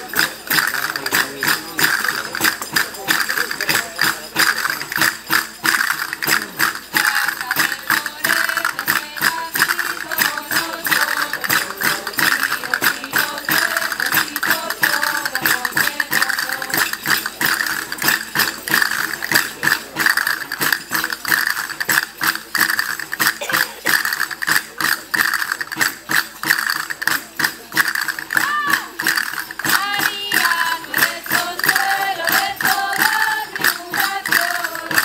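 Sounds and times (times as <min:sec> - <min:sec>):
sharp percussive clicks: 0:00.0 - 0:35.0
tambourines: 0:00.0 - 0:35.0
person singing: 0:06.9 - 0:16.9, 0:29.8 - 0:35.0.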